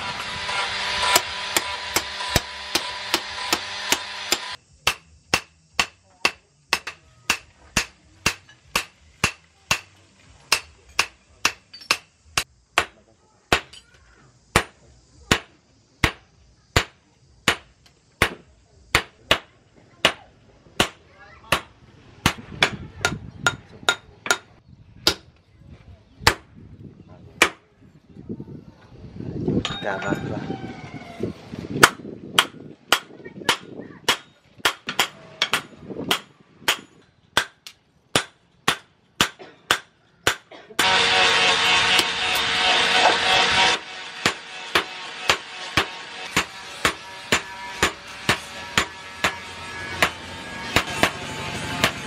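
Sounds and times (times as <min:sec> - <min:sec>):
hammer ringing on anvil: 0:29.6 - 0:30.2, 0:43.7 - 0:51.2
hammer blows on anvil: 0:31.8 - 0:52.0.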